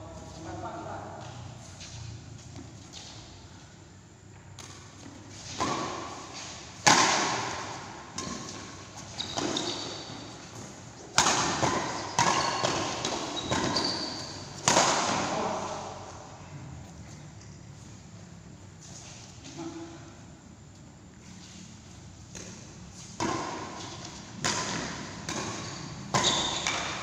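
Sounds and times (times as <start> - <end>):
shoes squeaking on court floor: 0.1 - 3.7, 4.3 - 6.8, 7.4 - 19.9, 20.7 - 27.0
rackets hitting shuttlecock: 4.5 - 16.0, 22.3 - 27.0.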